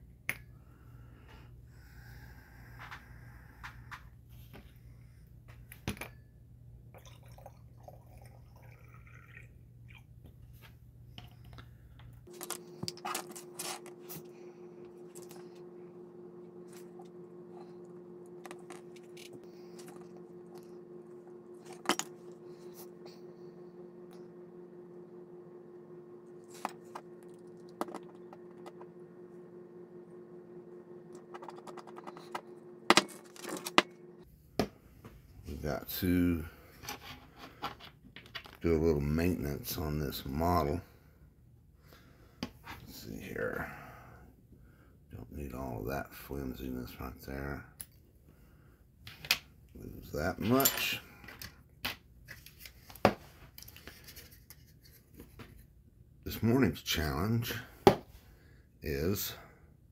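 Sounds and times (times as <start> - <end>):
low steady hum: 0.0 - 59.9
steady higher tone: 12.3 - 34.3.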